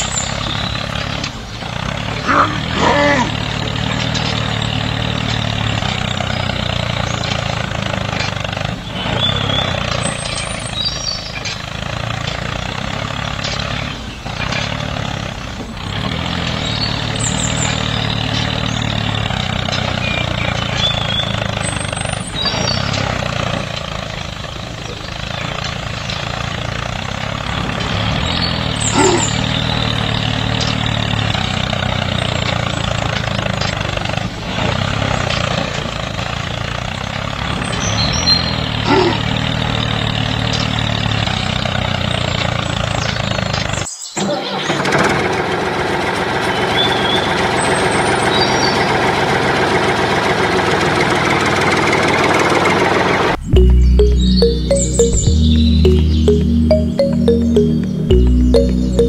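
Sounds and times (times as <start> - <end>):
tractor engine running: 0.0 - 37.6.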